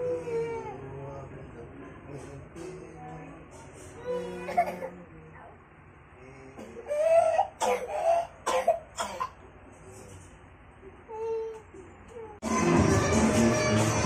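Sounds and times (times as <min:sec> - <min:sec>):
person coughing harshly: 0:07.6 - 0:09.4.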